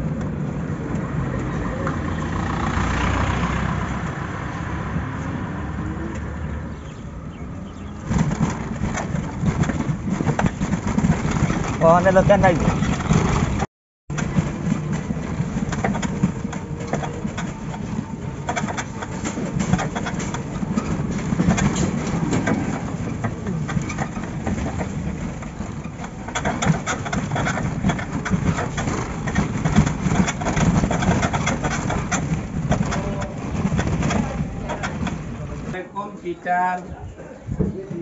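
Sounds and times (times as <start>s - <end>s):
road noise: 0.0s - 38.0s
vehicle body rattling: 6.7s - 35.8s.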